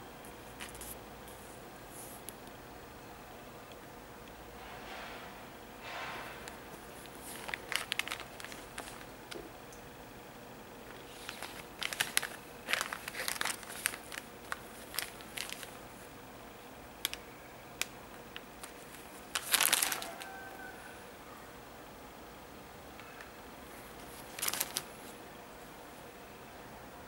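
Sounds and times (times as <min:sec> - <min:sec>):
plastic bag crinkling: 0:06.4 - 0:09.5, 0:10.8 - 0:16.0, 0:17.8 - 0:20.7, 0:23.9 - 0:25.2.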